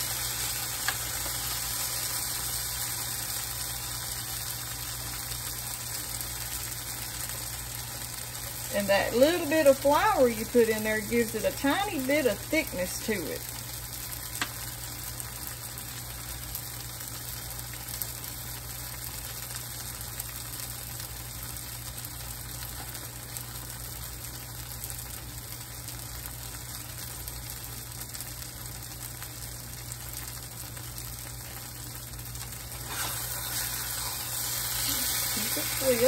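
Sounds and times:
vegetables sizzling in oil: 0.0 - 36.0
metal spatula scraping: 32.8 - 36.0.

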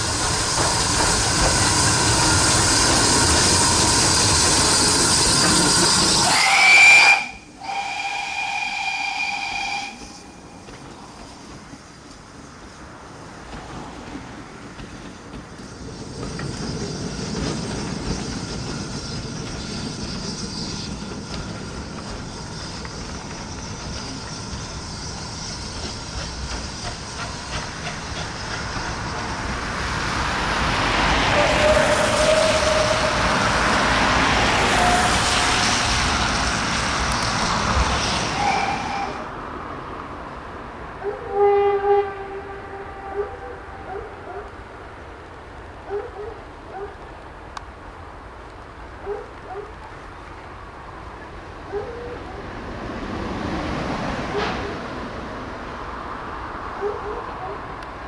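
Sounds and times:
train clicks: 0.0 - 7.3, 8.4 - 40.5, 52.8 - 58.0
train squeals: 0.0 - 40.1, 40.9 - 45.0
steam train approaching: 0.0 - 58.0
steam whistle blast: 1.6 - 10.5, 31.2 - 36.2, 38.0 - 39.3, 41.0 - 44.0.

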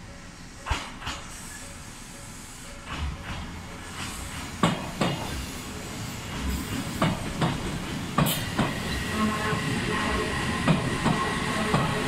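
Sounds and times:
train running rumble: 0.0 - 12.0
train wheels clacking on rail joints: 0.1 - 9.2, 10.0 - 12.0.

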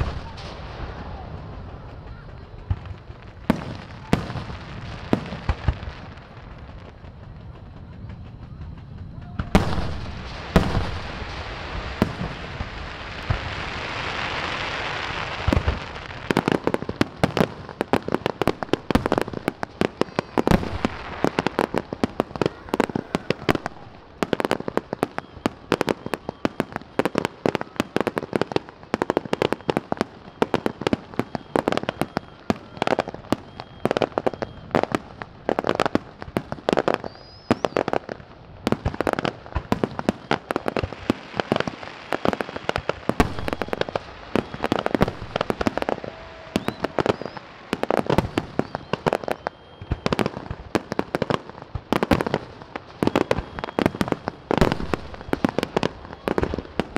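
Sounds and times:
fireworks bangs and pops: 0.0 - 56.9
fireworks hissing crackle: 0.0 - 56.9.

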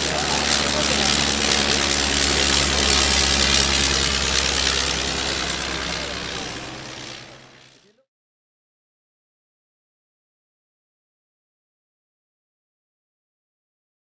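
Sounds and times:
aircraft rotary engine flying past: 0.0 - 8.0.

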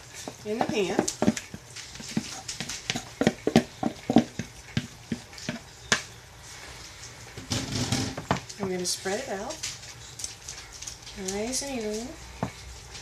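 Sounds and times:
spoon scraping plastic bowl: 0.2 - 5.7.

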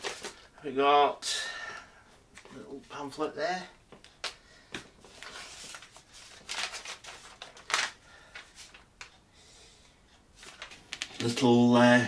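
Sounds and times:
paper and cardboard rustling: 0.0 - 0.5, 4.8 - 8.9, 10.4 - 11.5.

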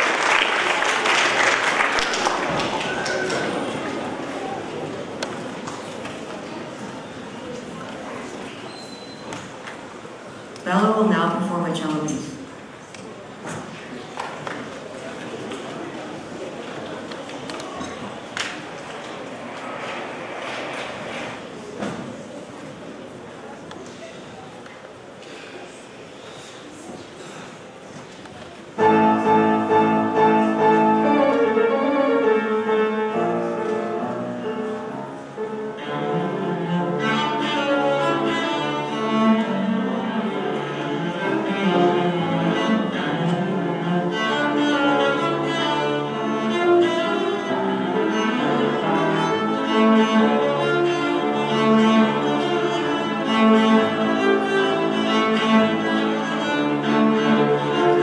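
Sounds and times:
bowed cello melody: 28.8 - 58.0.

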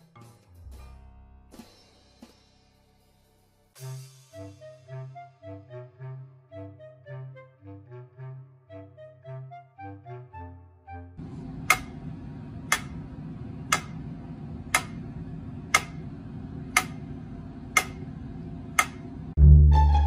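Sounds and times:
music: 0.0 - 11.2, 19.4 - 20.0
steady low hum: 11.2 - 19.9.

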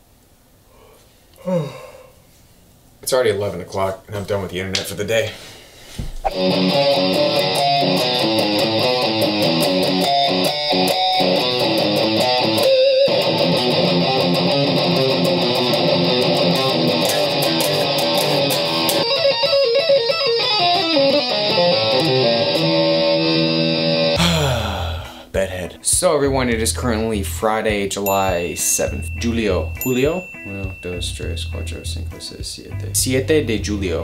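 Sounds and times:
electric guitar fast picked riffs: 6.3 - 24.2.

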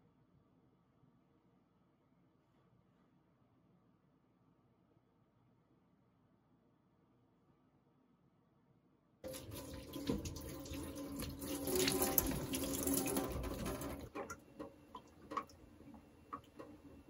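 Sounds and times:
tap water running into sink: 9.2 - 16.8.

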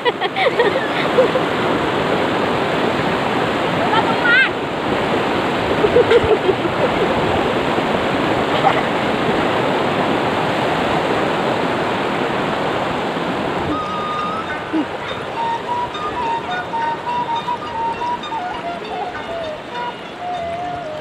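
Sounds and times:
river rushing: 0.0 - 21.0.

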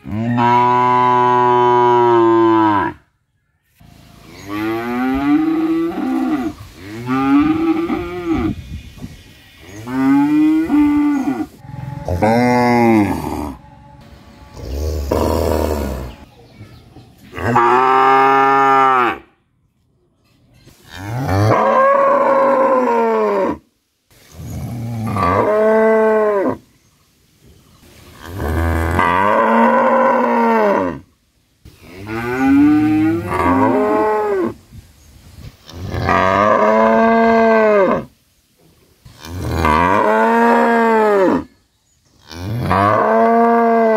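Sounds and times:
cows mooing: 9.9 - 16.2, 39.2 - 41.5.

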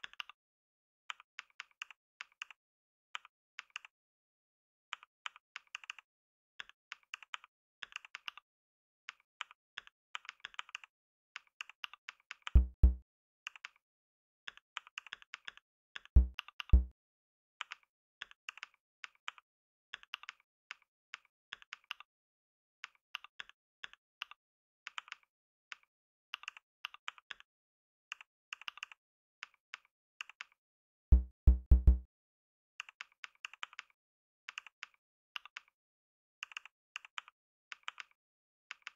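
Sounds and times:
deep thumps: 12.6 - 13.0, 16.2 - 16.9, 31.2 - 32.0.

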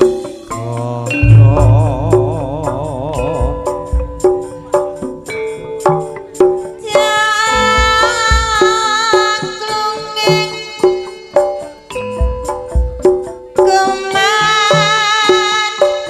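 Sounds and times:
high held melodic line: 1.1 - 4.6
drum strokes: 1.1 - 5.3
metallophone notes: 1.1 - 6.4.

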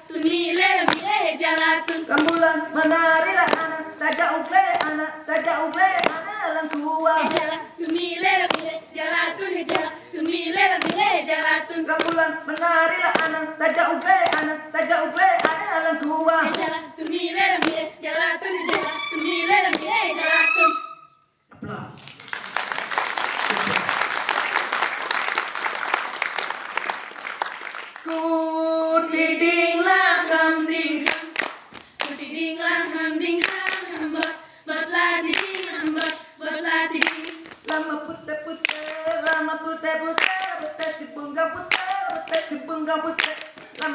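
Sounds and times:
group singing a chant: 0.0 - 20.9, 28.1 - 43.9
hand claps and body slaps: 0.8 - 13.4, 14.0 - 14.5, 15.3 - 17.8, 31.0 - 32.2, 37.0 - 37.9, 38.6 - 39.4, 40.2 - 41.0, 41.7 - 42.6, 43.2 - 43.9
applause: 22.0 - 28.2, 31.1 - 32.2, 43.2 - 43.9.

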